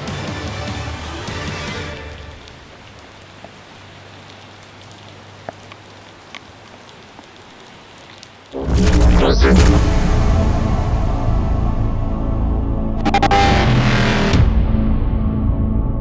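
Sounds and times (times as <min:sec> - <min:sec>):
loud music: 0:00.0 - 0:02.0, 0:08.6 - 0:16.0
soundtrack music: 0:00.0 - 0:02.5, 0:08.6 - 0:16.0
scattered raindrops: 0:00.0 - 0:11.7
rain hiss: 0:00.0 - 0:11.8.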